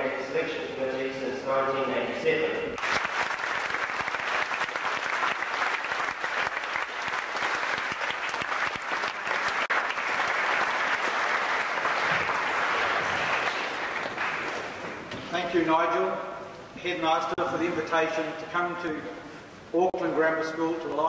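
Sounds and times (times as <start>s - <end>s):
audience applauding: 2.8s - 15.1s.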